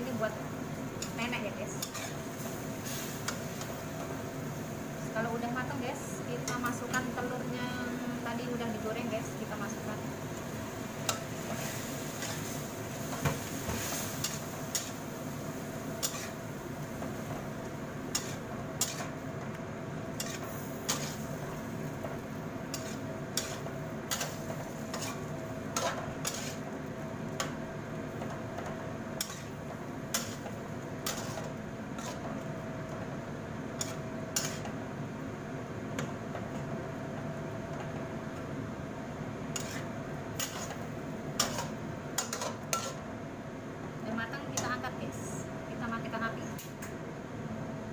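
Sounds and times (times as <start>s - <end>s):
food sizzling: 0.0s - 45.3s
metal spatula scraping wok: 1.7s - 2.2s, 11.5s - 12.7s, 16.0s - 16.4s, 20.1s - 21.3s, 22.7s - 26.6s, 29.2s - 32.3s, 33.8s - 34.7s, 39.5s - 40.8s.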